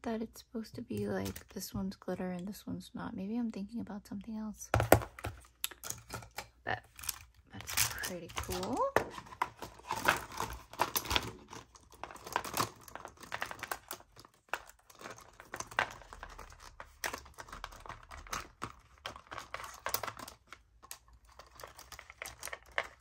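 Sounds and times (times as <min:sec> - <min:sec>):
plastic pens clicking and clattering: 0:00.8 - 0:01.6, 0:04.8 - 0:23.0
plastic crinkle: 0:04.9 - 0:23.0.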